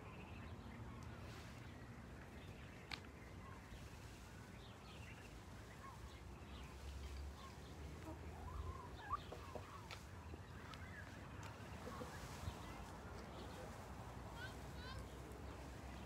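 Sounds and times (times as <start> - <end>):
chickens calling: 1.0 - 16.0
ducks calling: 2.9 - 16.0.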